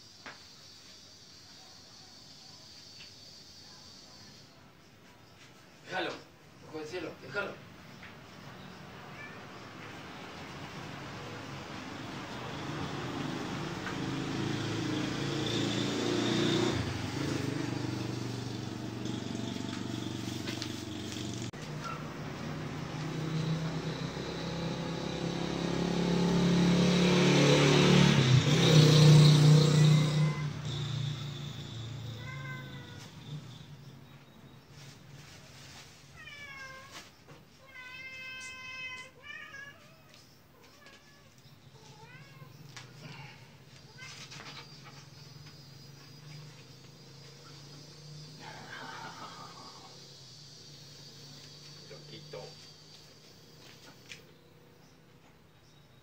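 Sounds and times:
cat meowing: 0:09.0 - 0:09.7, 0:29.8 - 0:30.6, 0:32.0 - 0:33.2, 0:36.1 - 0:37.0, 0:37.6 - 0:42.8, 0:43.8 - 0:44.7
vehicle engine running: 0:10.3 - 0:34.0.

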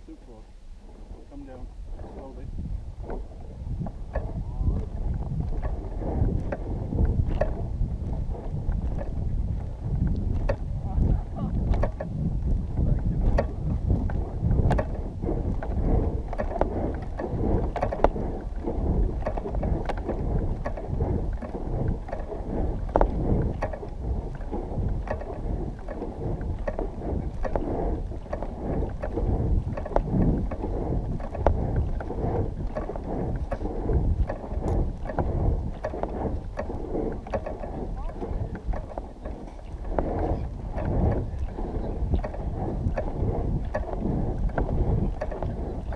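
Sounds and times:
wind buffeting microphone: 0:00.0 - 0:45.9
small irregular knocks: 0:11.7 - 0:12.1.

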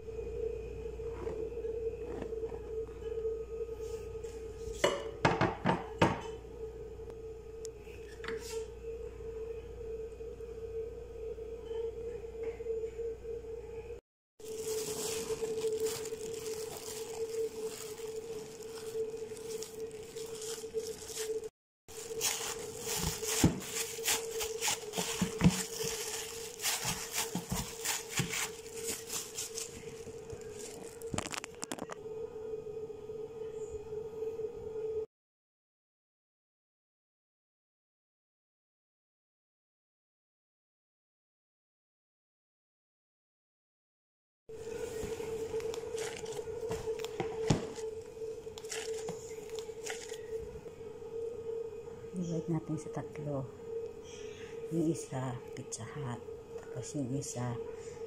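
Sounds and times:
steady hum: 0:00.0 - 0:35.1, 0:44.5 - 0:58.0
cling wrap crinkling: 0:14.4 - 0:32.0, 0:44.6 - 0:50.4.

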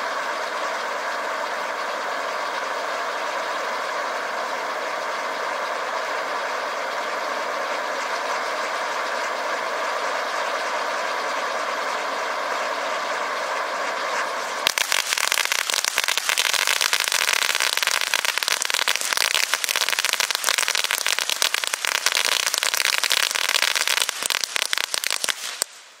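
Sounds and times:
fireworks hissing: 0:00.0 - 0:26.0
loud dense crackling: 0:14.6 - 0:25.9.

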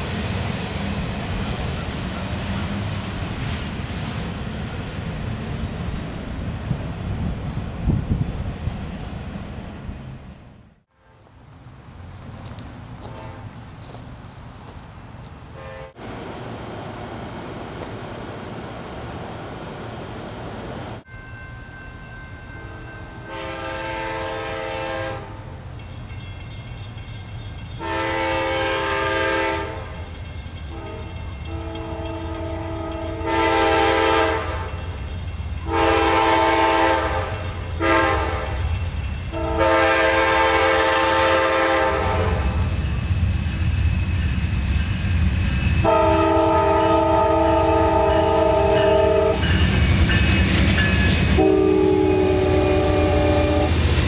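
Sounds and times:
diesel locomotive rumble: 0:00.0 - 0:54.0
locomotive horn blasts: 0:13.1 - 0:13.6, 0:15.6 - 0:16.0, 0:23.2 - 0:25.4, 0:27.8 - 0:30.0, 0:30.7 - 0:34.8, 0:35.6 - 0:38.6, 0:39.3 - 0:42.6, 0:45.8 - 0:49.6, 0:51.4 - 0:53.8.

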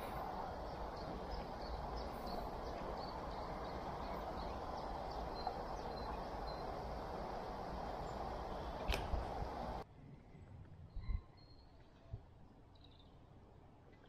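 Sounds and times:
low background rush: 0:00.0 - 0:10.9
sharp click: 0:08.8 - 0:09.2.

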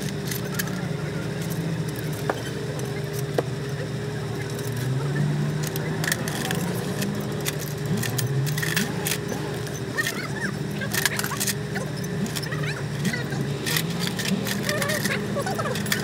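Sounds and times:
low mechanical hum: 0:00.0 - 0:16.0
metallic clicks of hand tools: 0:05.6 - 0:10.2.

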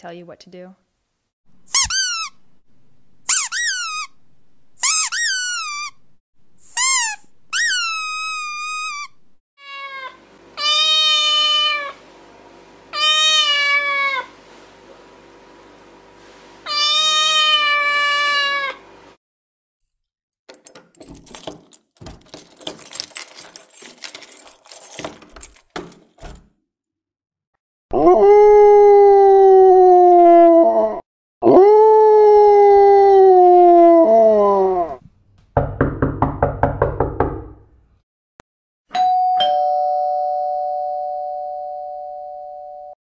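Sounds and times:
dog howling: 0:27.9 - 0:35.0.

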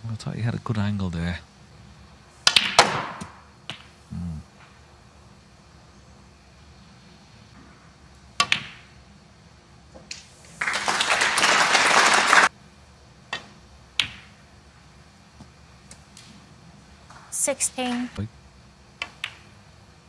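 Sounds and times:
cue striking ball: 0:02.5 - 0:03.9, 0:08.4 - 0:08.9, 0:13.3 - 0:14.4, 0:19.0 - 0:19.5
snooker balls clicking: 0:02.5 - 0:04.0, 0:08.4 - 0:08.9, 0:13.3 - 0:14.4, 0:19.0 - 0:19.6
audience applause: 0:10.6 - 0:12.5.

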